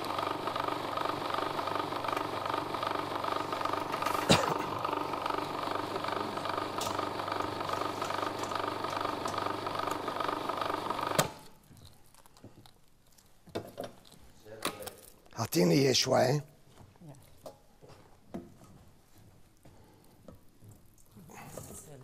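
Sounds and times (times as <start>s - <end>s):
food processor motor running: 0.0s - 11.6s.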